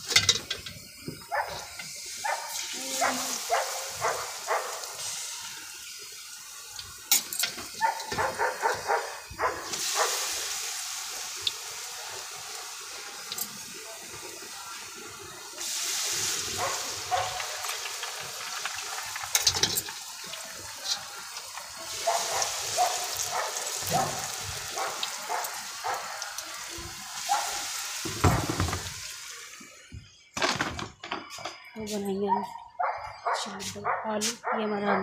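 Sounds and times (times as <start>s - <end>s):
utensils clinking on trays: 0.0s - 2.7s, 7.1s - 8.5s, 16.6s - 20.0s
oil sizzling in a wok: 0.0s - 30.3s.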